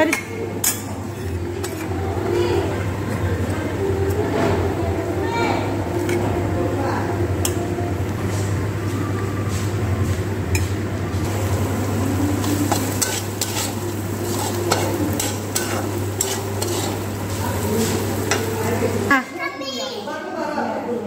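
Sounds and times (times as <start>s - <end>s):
utensils clinking on metal plates: 0.0s - 3.4s, 12.4s - 19.1s
steady low hum: 0.0s - 19.1s.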